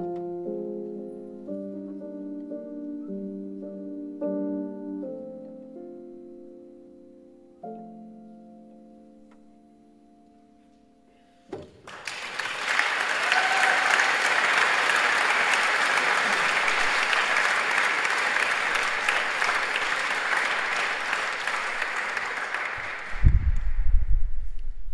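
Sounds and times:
audience applauding: 11.8s - 23.7s.

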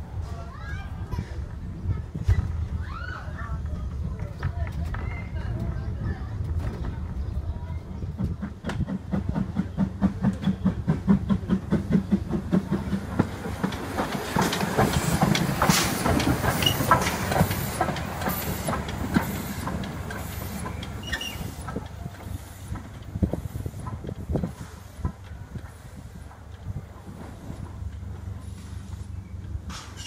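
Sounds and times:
steam locomotive rhythmic beat: 8.1s - 26.8s
loud steam hiss: 11.0s - 30.0s.

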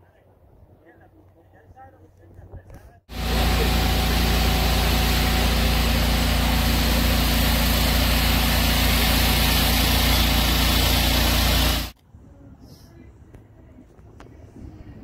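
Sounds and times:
car engine idling: 3.1s - 11.9s.

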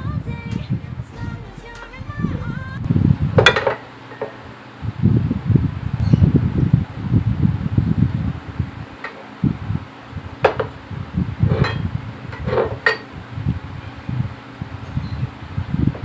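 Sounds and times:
low uneven rumble: 0.0s - 10.3s
dishes clinking on a table: 11.5s - 11.8s, 12.4s - 13.1s.

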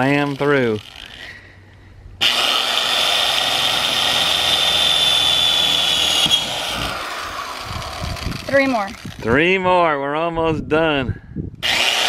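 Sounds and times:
electric drill drilling metal: 0.0s - 1.4s, 2.2s - 9.3s, 11.6s - 12.0s.

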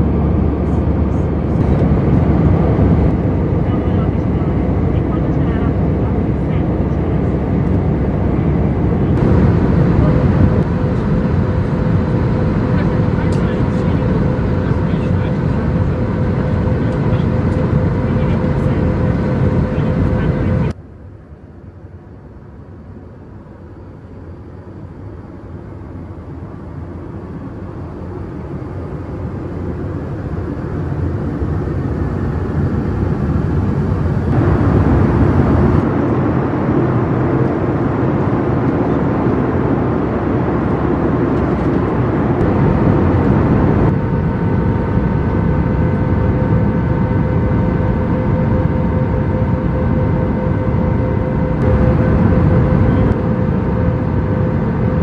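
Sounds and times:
cabin air and engine noise: 0.0s - 55.0s
faint steady hum: 47.8s - 55.0s.

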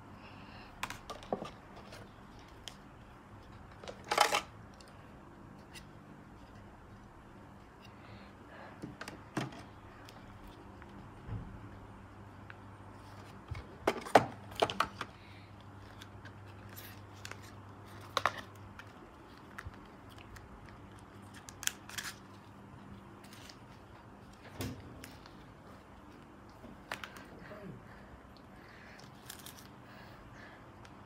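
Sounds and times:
cardboard and paper rustling: 15.7s - 27.3s.

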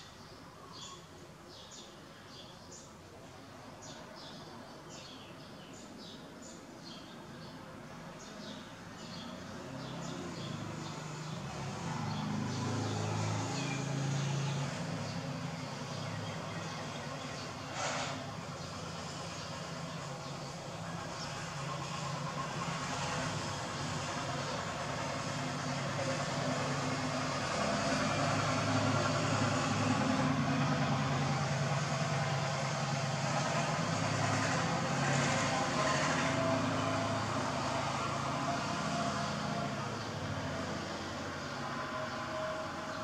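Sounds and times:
engine-like hum: 0.0s - 43.0s
broad rushing noise: 8.8s - 43.0s.

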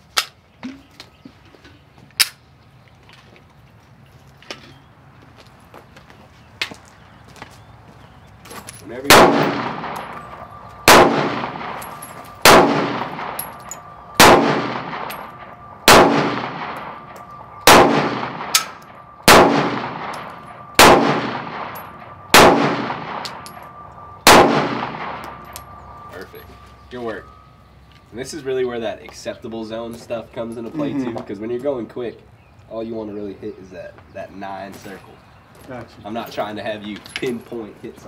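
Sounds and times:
pistol shots with echo: 8.9s - 26.1s.

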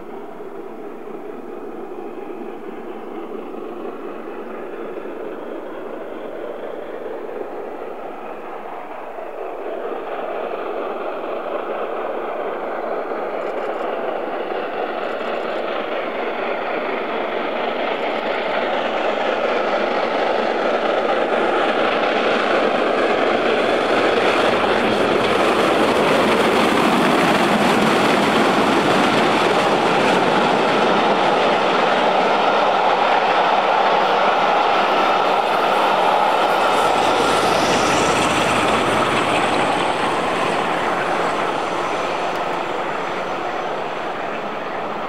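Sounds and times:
steam train passing: 0.0s - 45.0s.

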